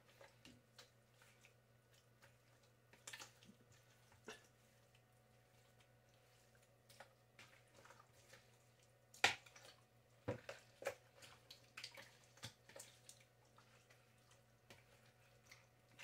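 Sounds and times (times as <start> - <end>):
wet squelches of raw chicken: 0.0 - 16.0.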